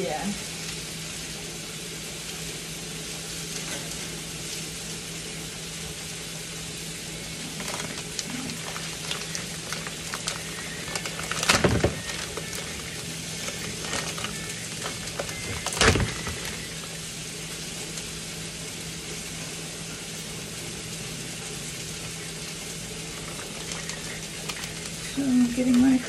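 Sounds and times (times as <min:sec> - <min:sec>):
frying pan hissing: 0:00.0 - 0:26.0.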